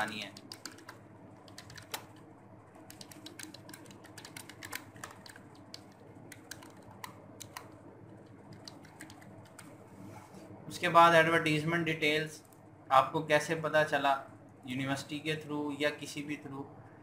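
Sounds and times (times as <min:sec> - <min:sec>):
keyboard typing clicks: 0:00.0 - 0:02.2, 0:02.8 - 0:09.8
low steady hum: 0:00.0 - 0:17.0.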